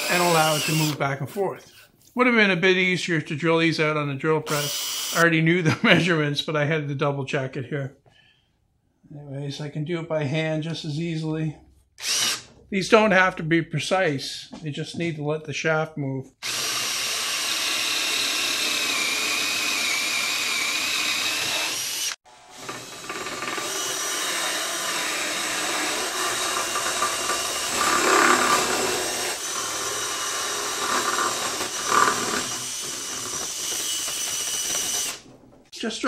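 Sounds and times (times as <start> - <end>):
cordless drill boring through wood: 0.0 - 1.0, 4.5 - 5.2, 12.0 - 12.5, 16.4 - 35.2.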